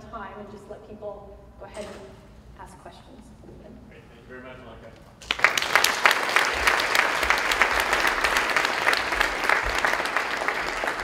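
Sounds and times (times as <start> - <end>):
audience applauding: 5.2 - 11.0.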